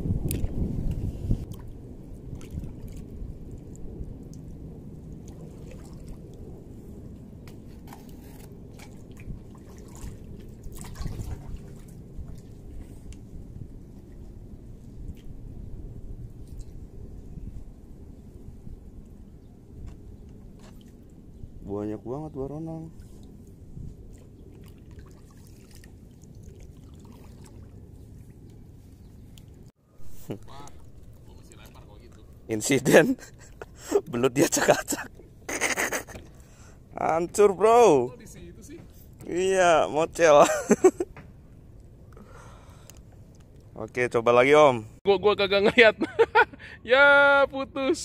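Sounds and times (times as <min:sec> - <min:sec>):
steady low rumble: 0:00.0 - 0:34.0.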